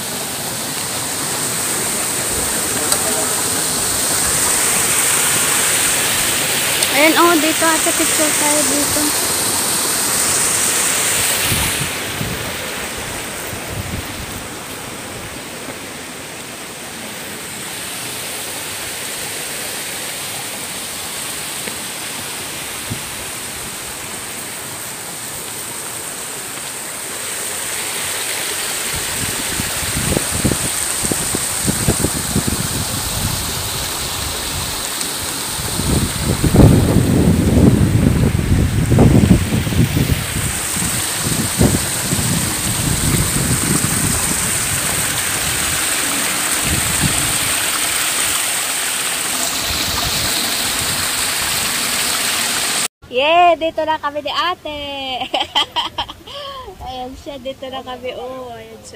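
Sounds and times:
mountain stream rushing: 0.0s - 52.9s
wind buffeting microphone: 11.2s - 14.5s, 28.9s - 34.8s, 35.5s - 48.4s, 49.4s - 51.8s.

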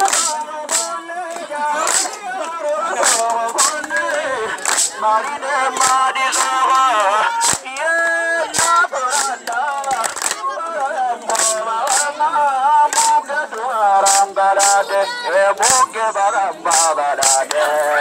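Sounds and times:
voices singing a chant: 0.0s - 18.0s
sharp percussive hits: 3.0s - 3.8s, 7.4s - 7.7s, 14.0s - 14.9s, 16.7s - 17.5s.

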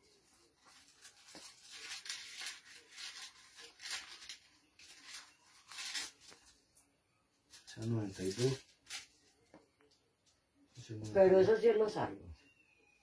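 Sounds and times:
pages turning: 0.1s - 6.7s, 7.5s - 9.6s.

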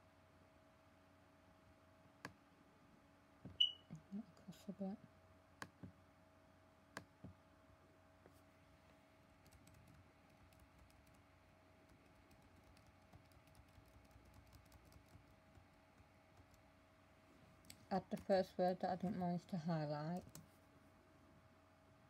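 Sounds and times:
laptop keyboard clicking: 9.4s - 11.2s, 11.8s - 16.6s, 20.2s - 20.5s.

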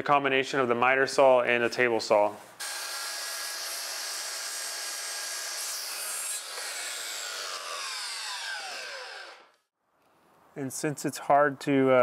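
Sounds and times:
miter saw cutting board: 2.6s - 9.7s
saw blade spinning down whine: 5.5s - 9.7s.

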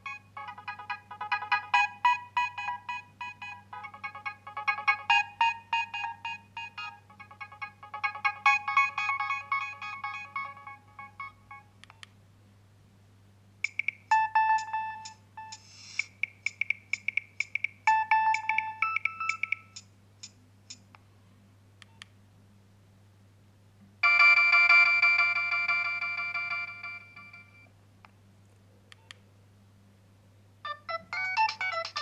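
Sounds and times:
mobile phone electronic ringtones: 0.0s - 11.7s, 13.7s - 16.0s, 17.9s - 19.8s, 24.0s - 27.7s, 30.7s - 32.0s.

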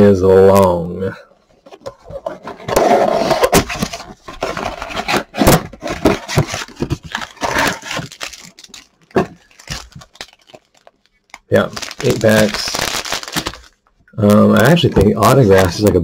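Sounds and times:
cardboard scraping and tearing: 2.0s - 10.3s, 11.5s - 13.6s.

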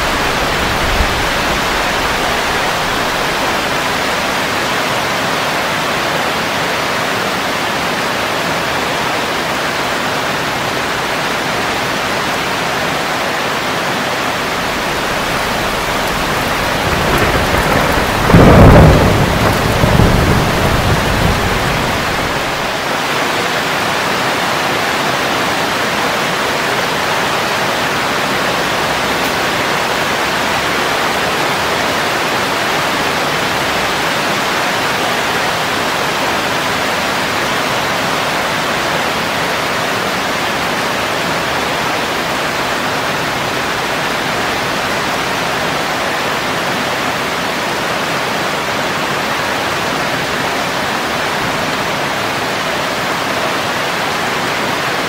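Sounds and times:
heavy rain on plants: 0.0s - 55.0s.

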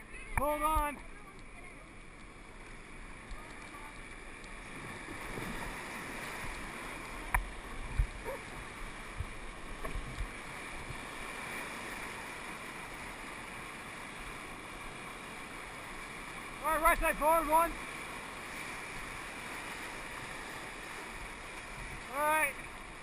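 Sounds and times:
whitewater rapids rushing: 10.4s - 22.8s.

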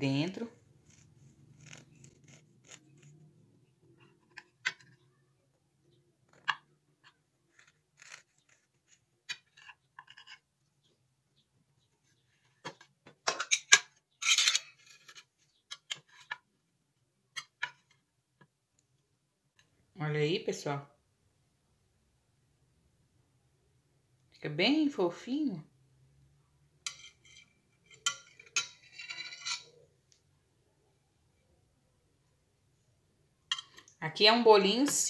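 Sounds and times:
knife scraping and tapping plate: 26.8s - 29.8s, 33.5s - 33.9s.

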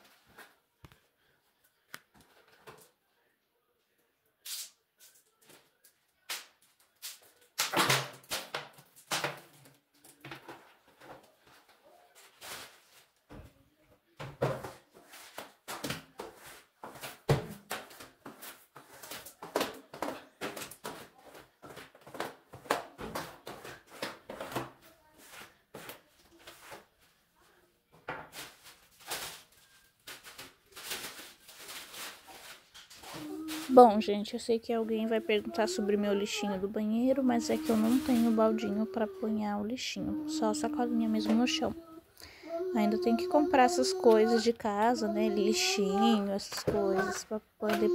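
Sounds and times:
plastic bottle crackling: 28.2s - 34.0s
broom swishing on wet tiles: 37.4s - 38.6s.

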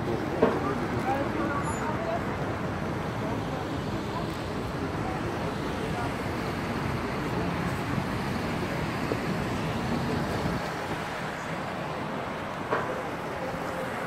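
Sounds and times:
cars passing: 0.0s - 14.0s.

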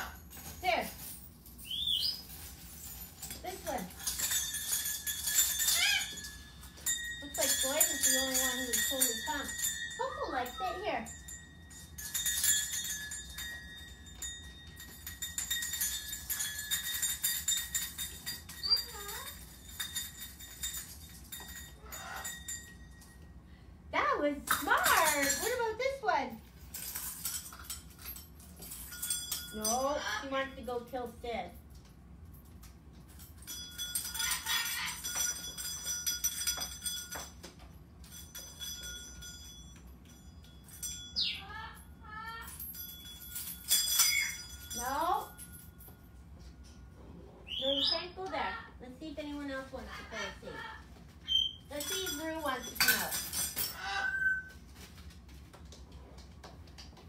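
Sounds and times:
sharp metal clinks: 0.0s - 23.6s, 24.2s - 55.8s
metal bells jingling: 0.0s - 57.0s
parrot flapping: 3.9s - 7.0s
wavering cry: 5.6s - 6.3s.

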